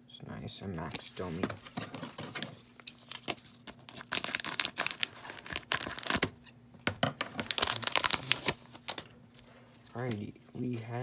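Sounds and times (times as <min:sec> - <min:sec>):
plastic wrapper crinkling: 0:01.2 - 0:06.4, 0:07.2 - 0:09.5.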